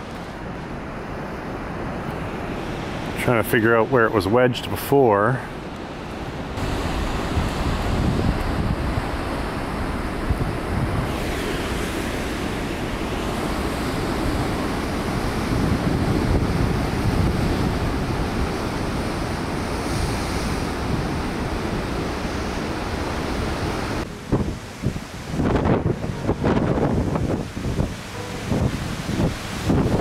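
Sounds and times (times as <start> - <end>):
wind buffeting microphone: 6.2 - 30.0
surf breaking on rocks: 6.6 - 30.0.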